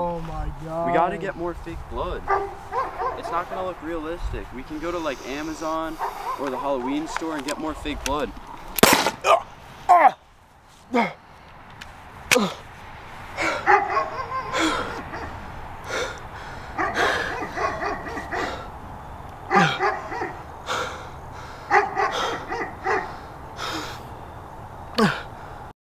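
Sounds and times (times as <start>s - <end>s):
yelping cries: 9.2s - 10.2s, 13.4s - 18.8s, 19.4s - 24.0s.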